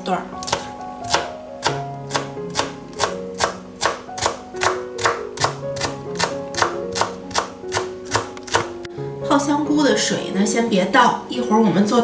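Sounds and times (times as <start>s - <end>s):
background music with held notes: 0.0s - 12.0s
knife chopping on cutting board: 0.4s - 8.9s.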